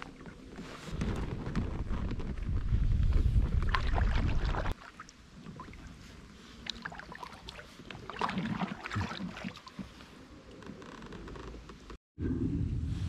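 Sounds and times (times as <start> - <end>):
wind buffeting microphone: 0.9 - 4.8
water splashes and drips: 3.4 - 10.1.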